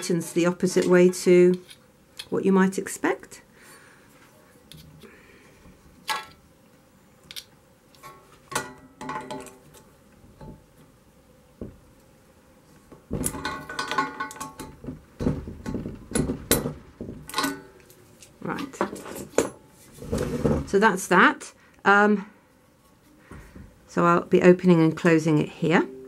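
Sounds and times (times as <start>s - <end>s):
spanner clinking on metal nut: 17.3s - 17.7s.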